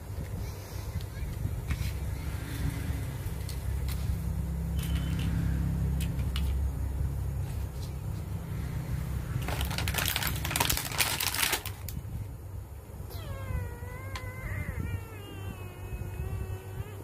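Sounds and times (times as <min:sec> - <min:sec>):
steady low hum: 0:00.0 - 0:17.0
plastic packaging crinkling: 0:09.4 - 0:12.0.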